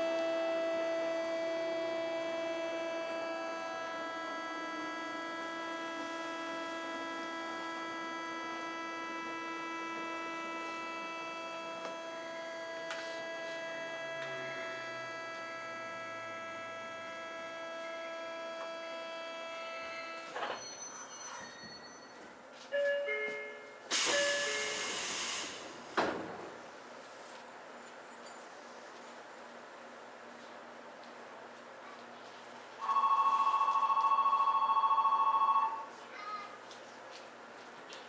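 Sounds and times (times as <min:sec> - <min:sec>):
train chopper whine: 0:00.0 - 0:20.4.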